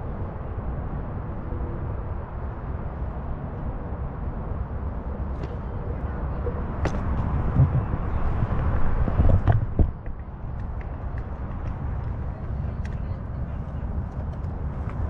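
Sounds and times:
wind buffeting microphone: 0:00.0 - 0:15.0
tyre rolling on pavement: 0:06.6 - 0:12.3.

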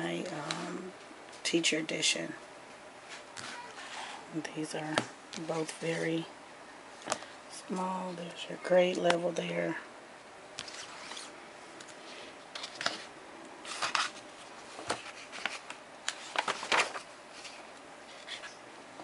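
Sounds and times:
book pages flipping: 0:03.1 - 0:04.2, 0:10.6 - 0:18.6
paper rustling: 0:10.6 - 0:11.3, 0:12.1 - 0:18.6.

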